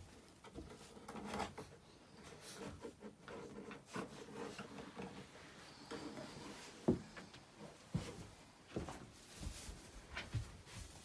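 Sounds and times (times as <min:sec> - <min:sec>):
puppy rustling in straw: 0:08.8 - 0:11.0.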